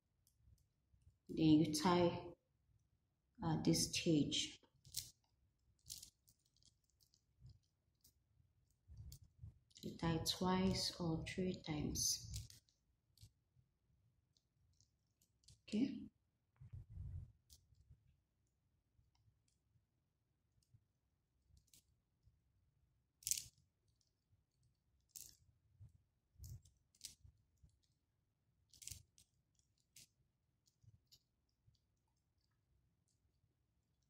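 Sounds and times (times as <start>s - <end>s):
plastic beads clicking: 4.7s - 10.0s, 12.1s - 13.6s, 14.2s - 15.7s, 17.3s - 19.8s, 20.5s - 22.4s, 23.0s - 34.0s.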